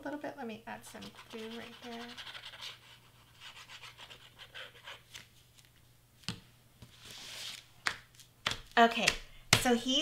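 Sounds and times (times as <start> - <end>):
hand smoothing paper: 0.9 - 5.2, 7.0 - 7.6.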